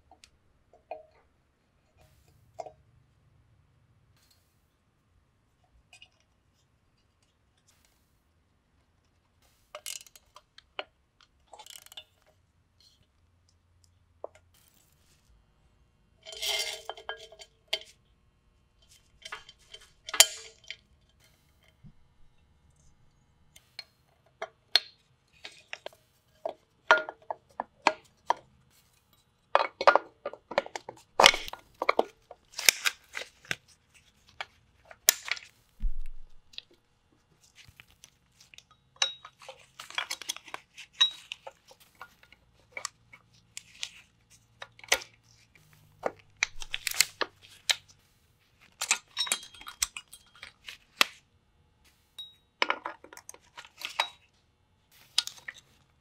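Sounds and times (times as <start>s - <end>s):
metal brake parts clinking: 19.2s - 21.2s, 48.8s - 50.6s.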